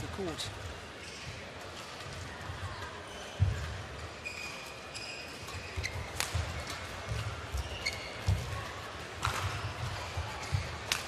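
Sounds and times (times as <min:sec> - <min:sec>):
shoes squeaking on court: 0:02.8 - 0:10.9.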